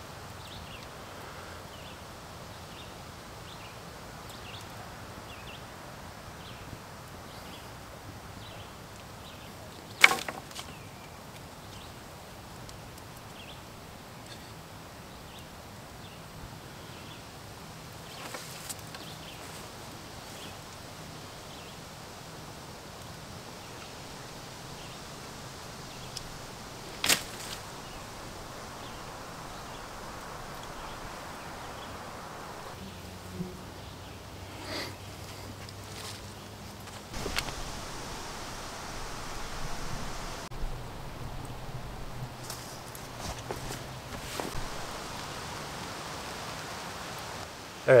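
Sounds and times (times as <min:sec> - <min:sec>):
faint steady hiss: 0:00.0 - 0:48.0
wood cracking: 0:09.8 - 0:11.4, 0:25.4 - 0:32.8, 0:36.8 - 0:45.9.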